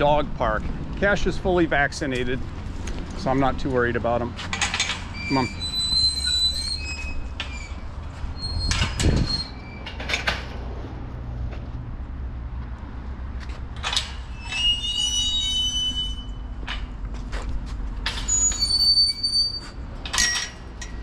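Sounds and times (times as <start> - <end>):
hinges squealing: 1.8 - 10.8, 13.6 - 21.0
metal gate latch clanking: 4.6 - 5.5, 20.0 - 21.0.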